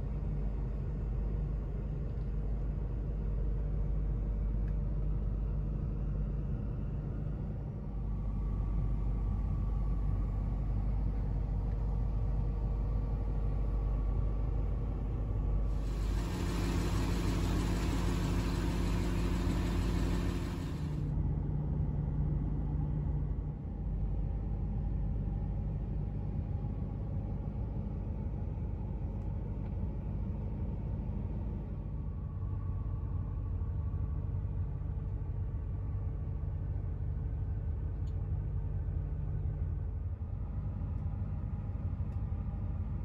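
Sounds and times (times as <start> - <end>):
vehicle idling rumble: 15.8 - 21.0
short steady hum: 15.8 - 21.1.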